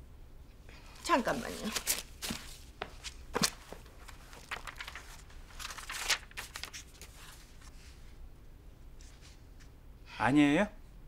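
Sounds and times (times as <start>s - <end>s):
faint room noise: 0.0s - 11.0s
paper rustling and crinkling: 1.0s - 7.7s.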